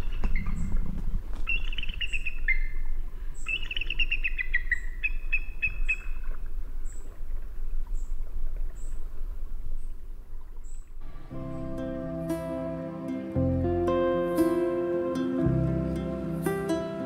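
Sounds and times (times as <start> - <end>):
low rumble: 11.0 - 14.8.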